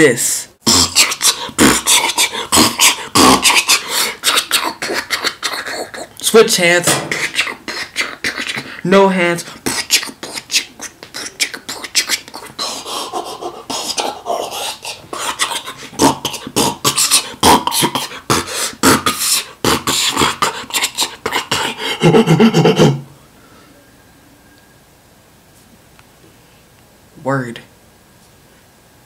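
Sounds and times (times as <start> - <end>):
person beatboxing: 0.6 - 23.0.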